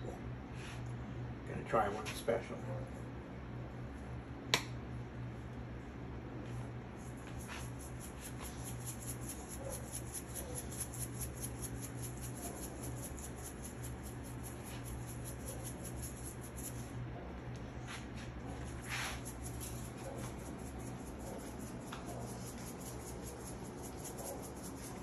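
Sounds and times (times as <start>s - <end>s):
steady low hum: 0.0s - 25.0s
spice shaker rattling: 7.1s - 16.9s, 18.6s - 25.0s.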